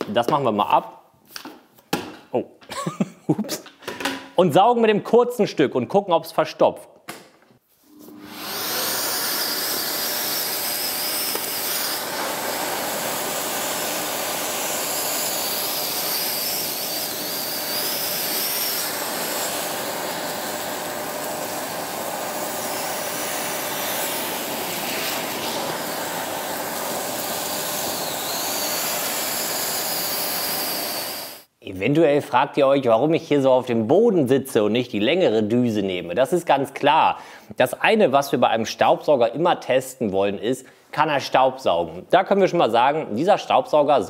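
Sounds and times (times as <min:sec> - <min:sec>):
vacuum cleaner running: 0:07.9 - 0:31.5.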